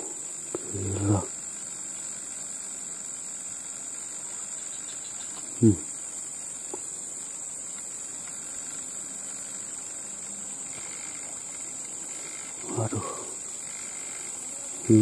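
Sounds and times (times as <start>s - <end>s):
insects droning: 0.0s - 15.0s
man muttering: 0.7s - 1.3s, 5.6s - 5.9s, 12.6s - 13.3s.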